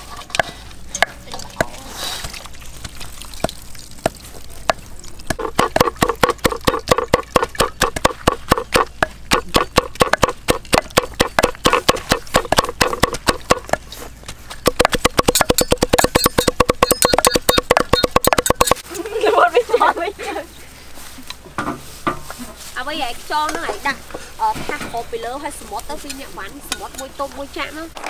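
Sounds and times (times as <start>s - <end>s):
cleaver chopping on wooden block: 3.4s - 13.8s, 14.6s - 18.8s.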